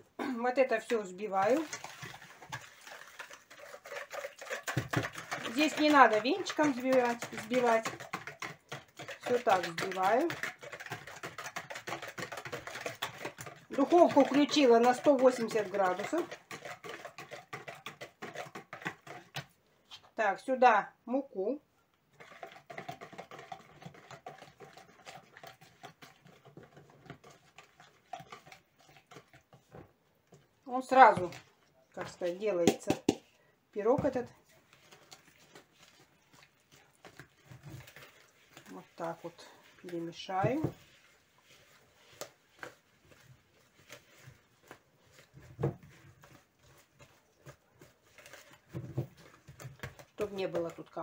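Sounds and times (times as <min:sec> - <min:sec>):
flour sifting through sieve: 0:00.6 - 0:19.5, 0:30.7 - 0:51.0
utensil scraping plastic bowl: 0:00.6 - 0:20.1, 0:22.1 - 0:51.0.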